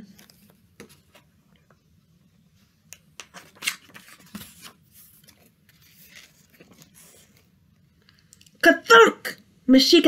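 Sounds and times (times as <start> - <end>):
book page turning: 0.0 - 1.8, 2.8 - 8.6.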